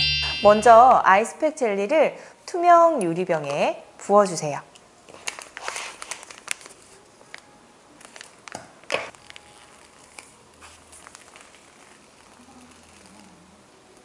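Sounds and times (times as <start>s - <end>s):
plastic pouch crinkling: 5.1s - 13.3s.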